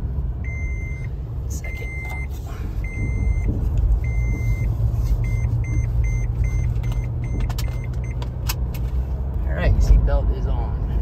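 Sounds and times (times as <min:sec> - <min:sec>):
engine and road rumble: 0:00.0 - 0:11.0
seatbelt warning beeps: 0:00.4 - 0:08.2.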